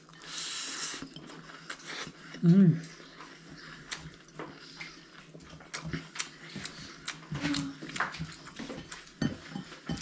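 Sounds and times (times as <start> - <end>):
chewing and lip smacking: 1.3 - 9.1.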